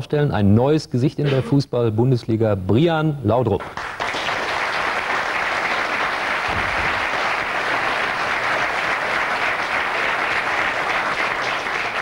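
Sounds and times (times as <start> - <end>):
audience applauding: 3.7 - 12.0.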